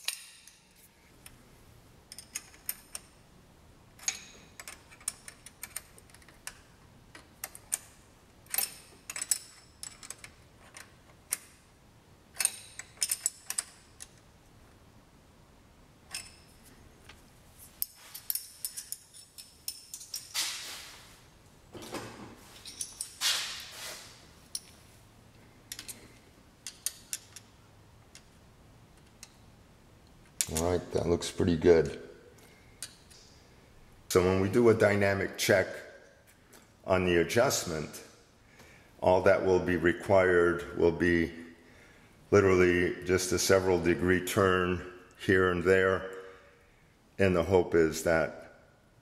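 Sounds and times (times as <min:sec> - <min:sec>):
wrench clicking on metal: 0:08.5 - 0:11.5, 0:12.4 - 0:14.2, 0:26.6 - 0:27.5.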